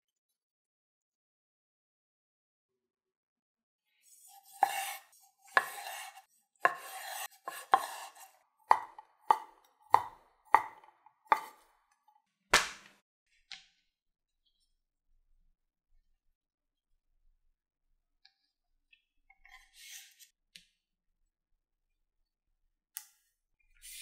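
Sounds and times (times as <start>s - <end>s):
knife slicing food: 4.2s - 11.7s
knife knocking on wooden board: 6.7s - 8.0s, 8.7s - 11.6s.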